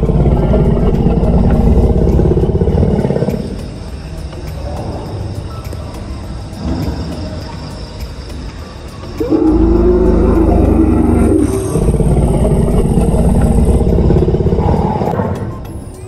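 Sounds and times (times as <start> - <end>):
dinosaur roar through loudspeakers: 0.0 - 3.8, 9.2 - 15.7.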